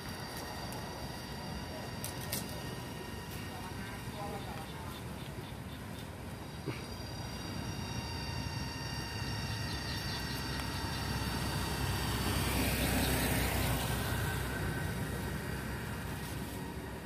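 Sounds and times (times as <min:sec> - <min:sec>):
steady high-pitched whine: 0:00.0 - 0:17.0
vehicle passing: 0:06.2 - 0:17.0.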